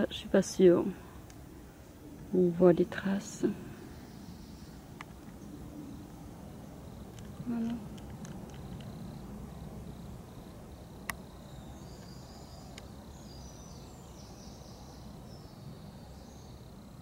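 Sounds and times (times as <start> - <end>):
faint high-pitched chirping: 8.6 - 17.0.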